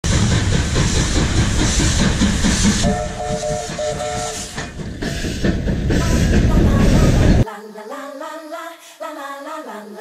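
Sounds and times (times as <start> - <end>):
steam locomotive rumble and hiss: 0.0 - 7.4
steam whistle blasts: 2.8 - 4.6.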